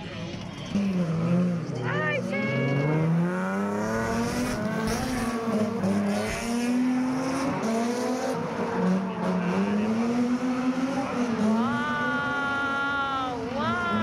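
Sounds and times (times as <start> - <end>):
car engine revving: 0.6 - 14.0.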